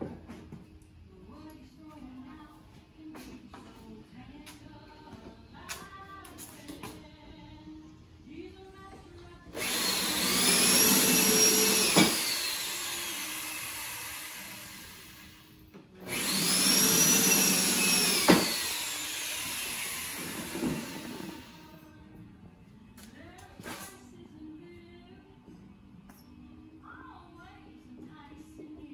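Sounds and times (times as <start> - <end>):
power drill boring into wood: 9.6 - 21.6.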